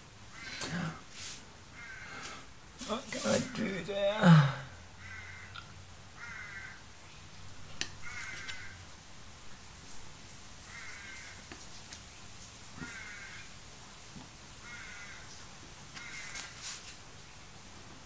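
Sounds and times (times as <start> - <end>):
crow cawing: 1.7 - 2.5, 5.0 - 6.8, 8.0 - 8.8, 10.7 - 11.4, 12.8 - 13.5, 14.6 - 15.4, 16.0 - 16.6.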